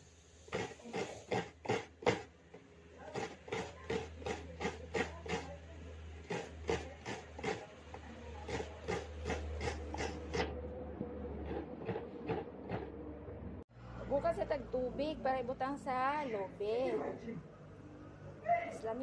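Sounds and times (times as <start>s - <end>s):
coconut scraping on grater: 0.5s - 2.3s, 3.1s - 5.6s, 6.2s - 10.6s, 11.4s - 12.9s.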